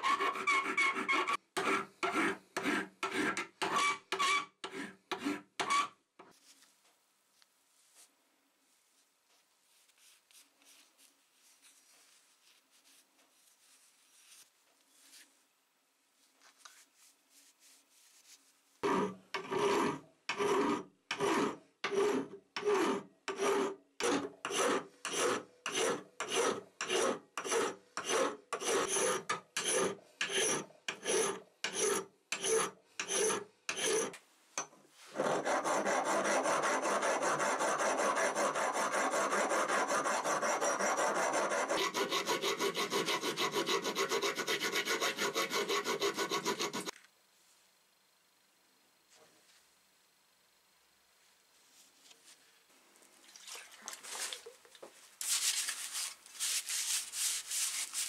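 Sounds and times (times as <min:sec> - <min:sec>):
file rasping on metal: 0:00.0 - 0:05.9, 0:18.8 - 0:34.2, 0:35.1 - 0:46.9.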